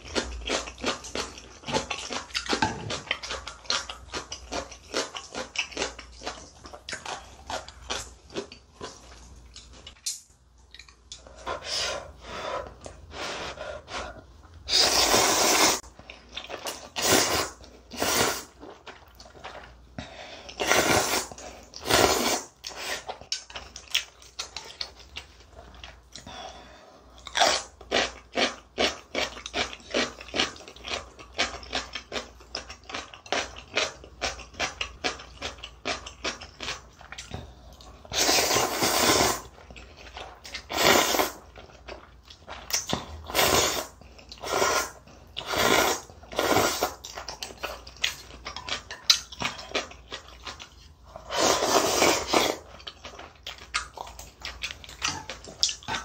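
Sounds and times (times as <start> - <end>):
person slurping noodles: 11.5 - 15.9, 16.8 - 18.6, 20.5 - 23.1, 38.1 - 39.5, 40.6 - 41.5, 43.2 - 47.0, 51.1 - 52.7.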